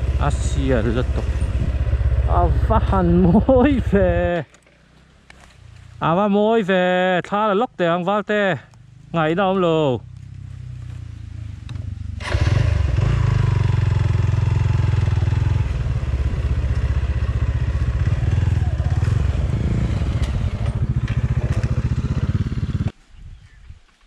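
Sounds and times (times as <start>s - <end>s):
motorcycle engine running: 0.0s - 6.0s, 9.8s - 22.9s.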